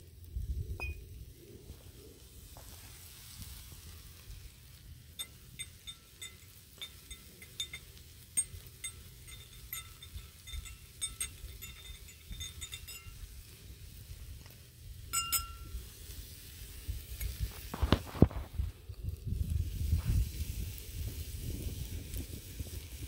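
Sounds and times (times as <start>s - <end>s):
spoon clinking against glass: 5.2s - 13.2s, 15.2s - 15.7s.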